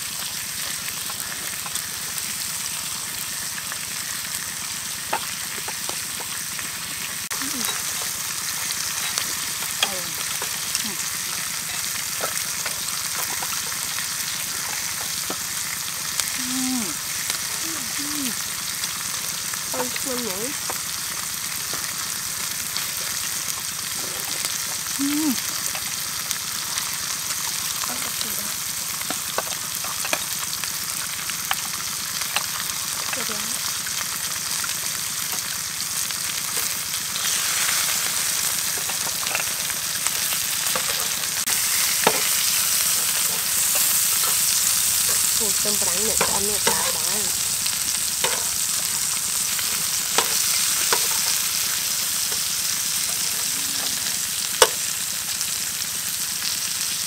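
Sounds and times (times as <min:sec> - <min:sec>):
meat and onions sizzling in a pan: 0:00.0 - 0:57.0
tongs clicking against a pan: 0:42.0 - 0:47.5, 0:48.2 - 0:48.8.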